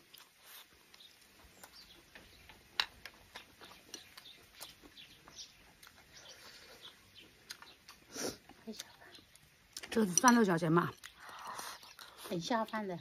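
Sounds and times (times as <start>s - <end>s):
person chewing and lip-smacking: 2.7s - 12.8s.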